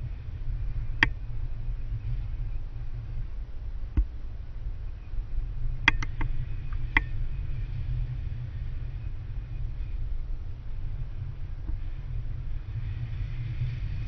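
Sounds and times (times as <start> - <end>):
wind buffeting microphone: 0.0 - 14.0
sharp clicks: 5.9 - 6.3.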